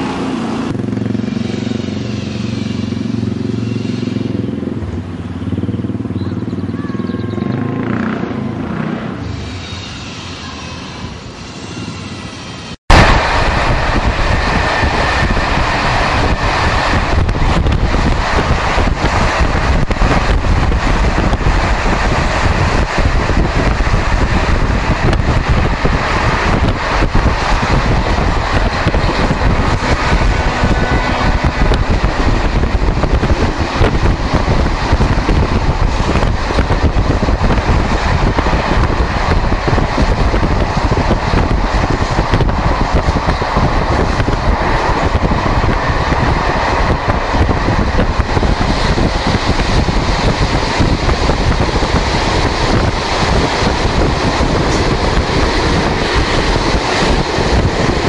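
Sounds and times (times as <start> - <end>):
wind buffeting microphone: 11.8 - 58.0.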